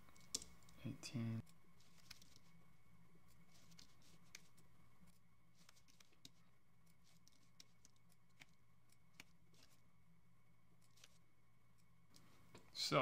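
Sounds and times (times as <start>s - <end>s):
faint room hum: 0.0s - 13.0s
mouse and keyboard clicks: 0.1s - 0.8s, 7.1s - 9.8s.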